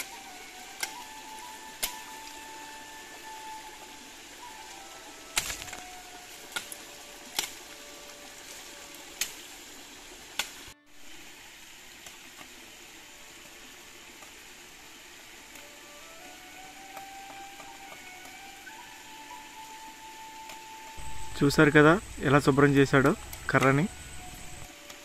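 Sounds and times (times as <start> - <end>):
blade chopping bamboo: 0.0 - 2.4, 5.3 - 7.8
stream hissing: 0.0 - 25.0.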